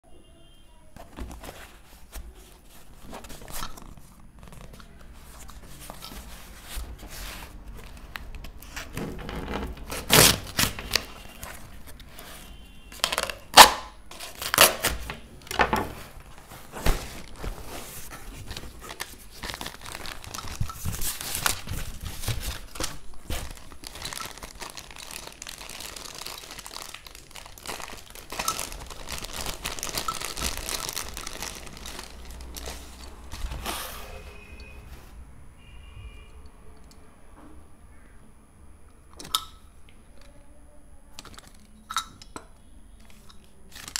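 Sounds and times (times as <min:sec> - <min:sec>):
plastic bag crinkling: 0:01.4 - 0:34.5, 0:43.0 - 0:43.9
cardboard tearing: 0:08.6 - 0:12.4, 0:13.0 - 0:15.2.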